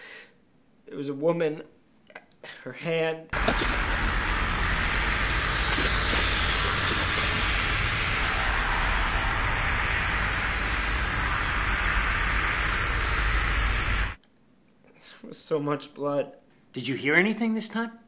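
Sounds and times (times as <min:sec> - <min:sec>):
loud hissing rumbling static noise: 0:03.4 - 0:14.2.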